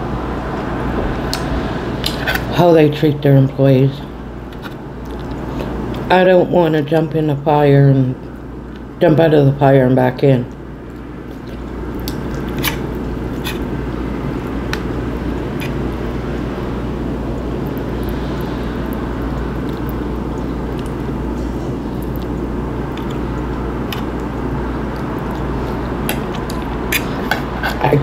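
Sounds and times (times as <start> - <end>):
steady rushing noise: 0.0 - 3.5.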